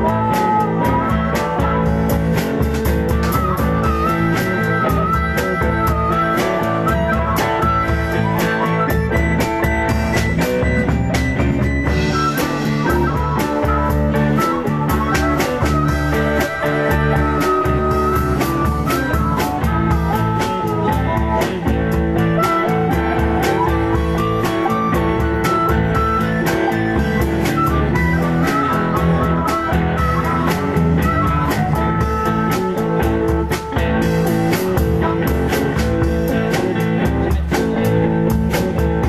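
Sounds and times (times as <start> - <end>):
blues guitar: 0.0 - 39.0
drum kit beat: 0.0 - 39.0.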